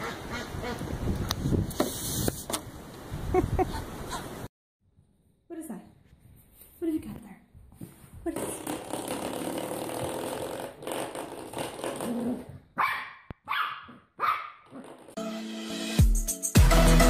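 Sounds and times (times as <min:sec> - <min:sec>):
puppy barking: 0:12.8 - 0:14.7
music: 0:15.2 - 0:17.0.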